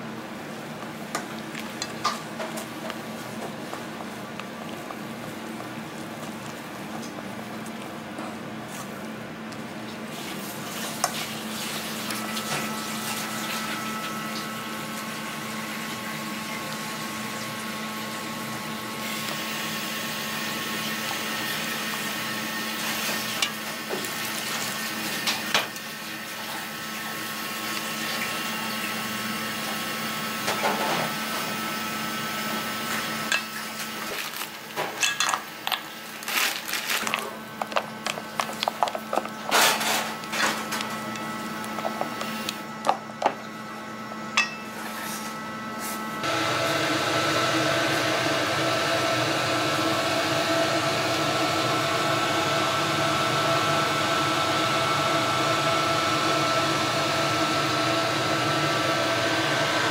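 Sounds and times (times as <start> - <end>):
chopsticks stirring batter: 37.0 - 39.5, 40.1 - 43.0.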